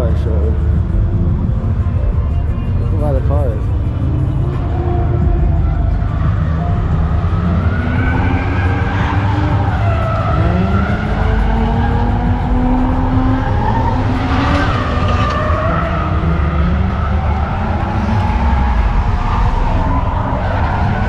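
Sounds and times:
steady low rumble: 0.5s - 7.4s
engine revving: 3.2s - 21.0s
car tires squealing: 6.2s - 21.0s.

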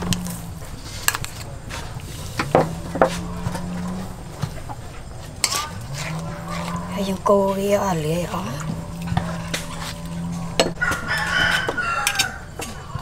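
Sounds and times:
low hum: 0.0s - 11.1s
metal spoon scraping and clinking: 5.4s - 6.8s.

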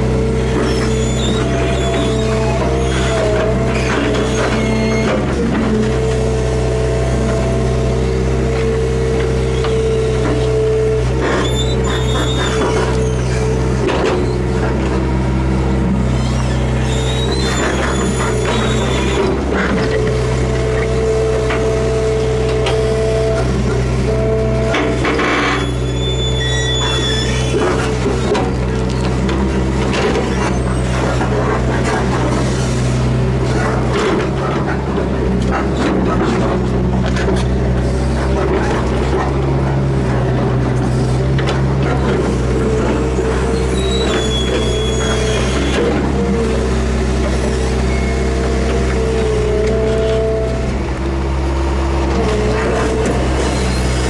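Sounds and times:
diesel engine running under load: 0.0s - 54.0s.

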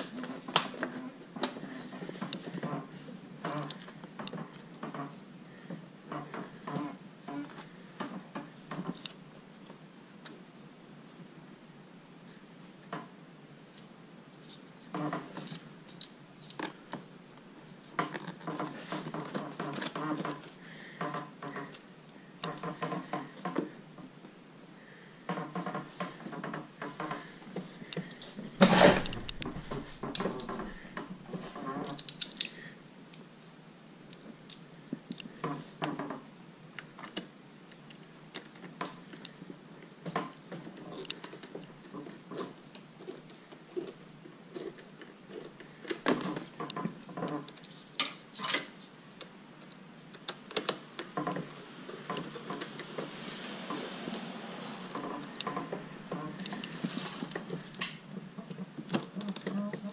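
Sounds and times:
tools clicking and clattering: 27.9s - 31.0s, 31.7s - 32.6s.

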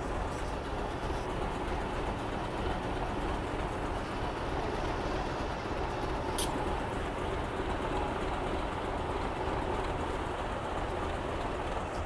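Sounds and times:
diesel locomotive rumbling: 0.0s - 12.0s
short sharp click: 6.3s - 6.6s.

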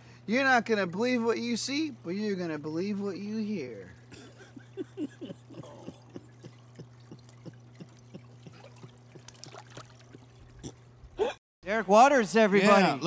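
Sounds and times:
steady low hum: 0.0s - 13.0s
water trickling and dripping: 5.8s - 11.2s.

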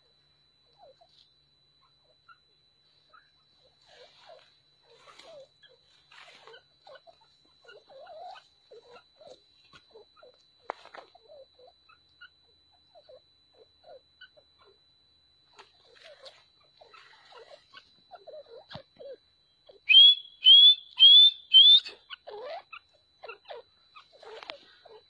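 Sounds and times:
partridges chirping and squeaking: 3.1s - 14.7s, 15.6s - 25.0s.

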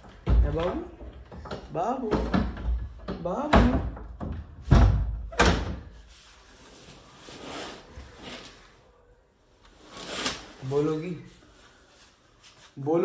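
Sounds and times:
wooden door banging: 0.0s - 6.0s
cloth curtain rustling: 6.0s - 8.8s, 9.7s - 13.0s.

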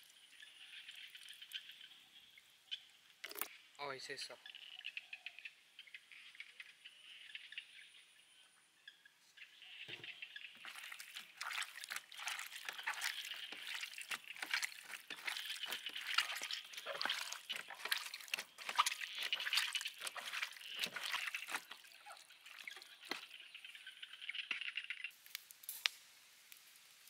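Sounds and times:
hands kneading wet meat: 10.6s - 23.4s.

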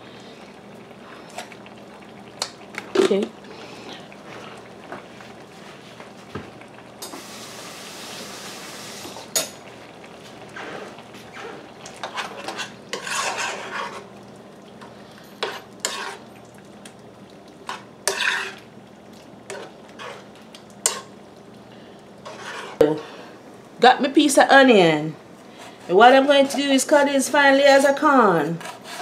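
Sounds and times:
simmering pot hiss: 0.0s - 29.0s
spoon clinking and scraping pot: 11.4s - 14.1s, 15.4s - 16.3s, 17.7s - 18.6s.

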